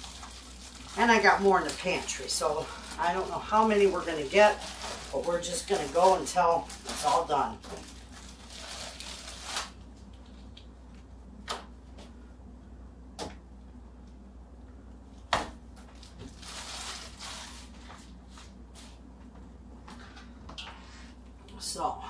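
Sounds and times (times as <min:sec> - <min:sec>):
plastic bag crinkling: 0:00.0 - 0:10.6, 0:15.9 - 0:18.4.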